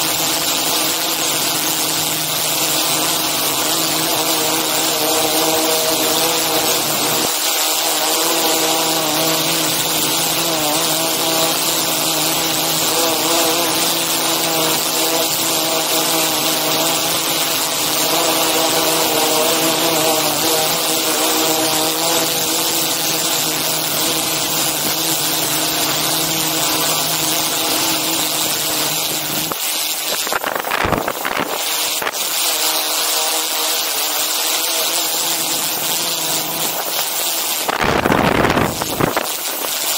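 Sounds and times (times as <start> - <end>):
drone propellers whirring: 9.4 - 33.1
wind buffeting microphone: 37.7 - 39.3.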